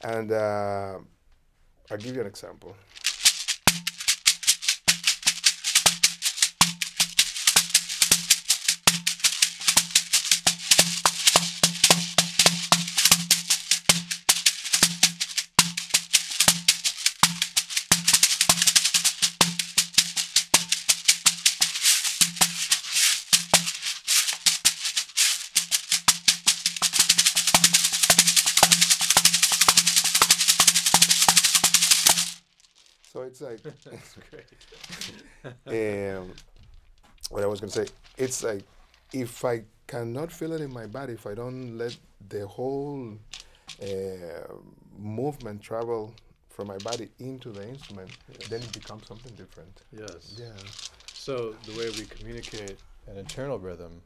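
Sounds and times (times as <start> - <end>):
shaker bead rattle: 2.8 - 39.4, 42.8 - 44.2, 45.7 - 53.5.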